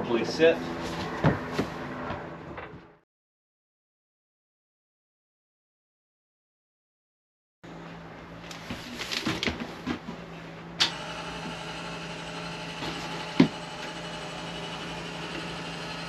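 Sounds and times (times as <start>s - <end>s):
bed lift mechanism running: 10.1s - 16.0s.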